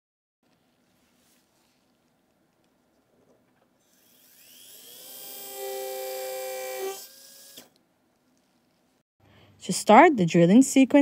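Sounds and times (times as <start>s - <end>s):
motor whine: 3.9s - 7.7s.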